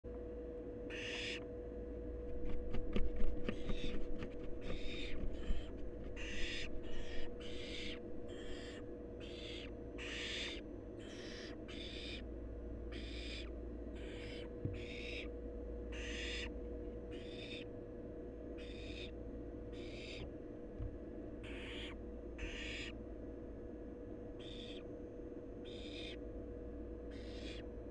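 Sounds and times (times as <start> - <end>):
owl nestlings hissing: 0.9 - 1.4, 3.4 - 12.2, 12.9 - 15.3, 15.9 - 16.5, 17.2 - 17.6, 18.6 - 19.2, 19.8 - 20.2, 21.4 - 22.9, 24.4 - 24.8, 25.6 - 26.2, 27.1 - 27.6
wings flapping on wood chips: 2.3 - 7.3.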